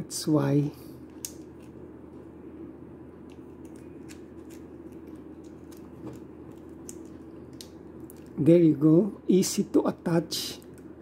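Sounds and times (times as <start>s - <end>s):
faint steady background noise: 0.0s - 11.0s.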